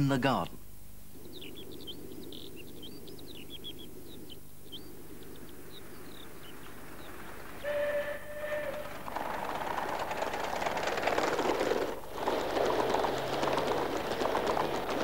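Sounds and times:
birds chirping: 0.0 - 10.4
model locomotive whistle: 7.6 - 9.1.

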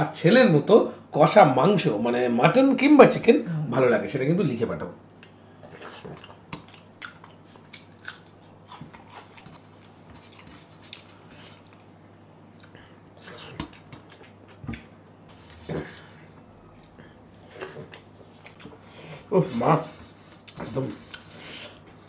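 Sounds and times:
person chewing: 5.2 - 11.8, 12.5 - 21.8.

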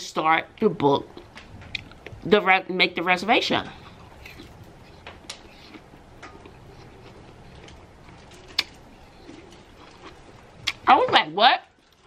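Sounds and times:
apple crunching: 3.6 - 11.1
mouth clicks: 8.4 - 10.9.

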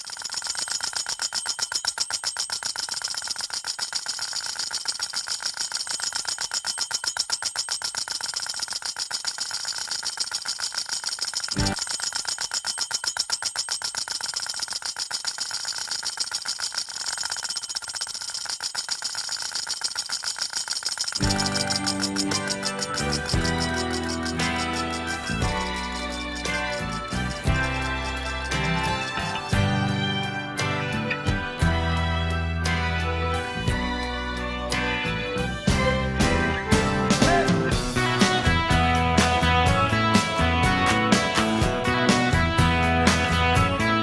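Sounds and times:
fast ringing mechanical rattle: 0.0 - 30.4.

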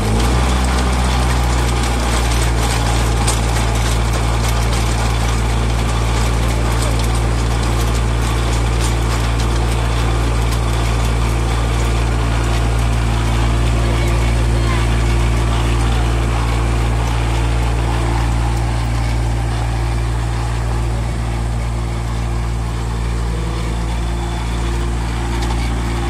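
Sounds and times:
auger turning in soil: 0.0 - 26.0
tractor engine running steadily: 0.0 - 26.0.

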